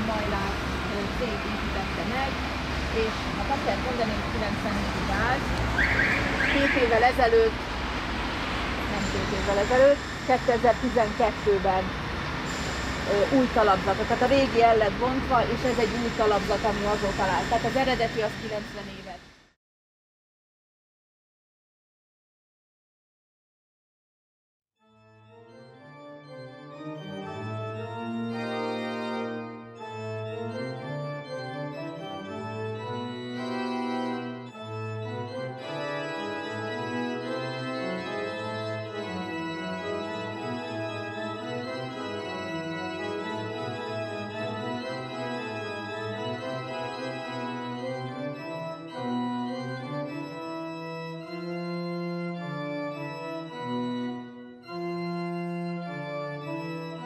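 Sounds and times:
organ chords: 0:24.9 - 0:57.0.

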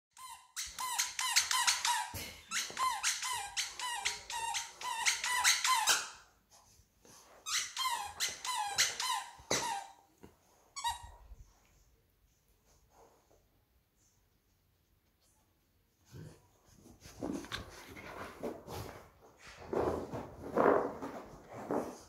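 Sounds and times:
dog toy squeaking: 0:00.2 - 0:06.2, 0:07.4 - 0:10.0.

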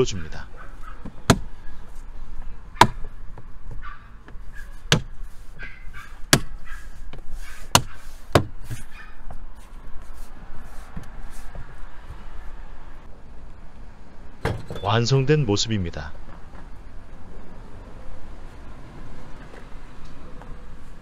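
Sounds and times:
glove rubbing on plastic: 0:04.4 - 0:09.0.

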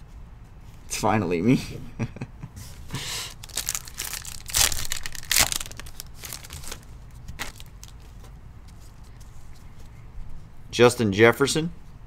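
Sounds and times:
wrapper tearing and crinkling: 0:03.3 - 0:08.1
wrapper rustling: 0:03.3 - 0:08.3.

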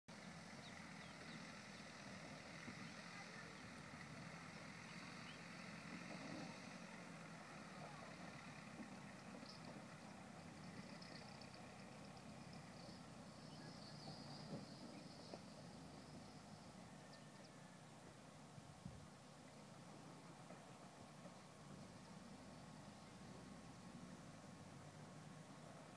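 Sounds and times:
distant van engine: 0:00.1 - 0:25.9
faint high chirping: 0:09.3 - 0:17.8.

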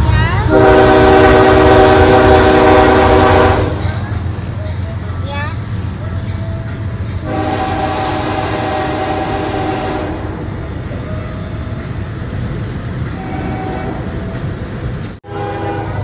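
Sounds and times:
locomotive horn blasts: 0:00.5 - 0:04.1, 0:07.2 - 0:10.5, 0:13.1 - 0:14.2, 0:15.2 - 0:16.0.

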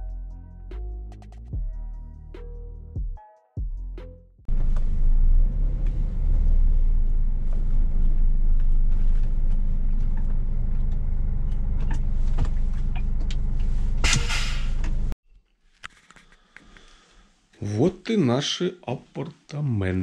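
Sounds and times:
truck diesel engine running: 0:04.5 - 0:14.0
air brake hiss: 0:14.1 - 0:14.8.

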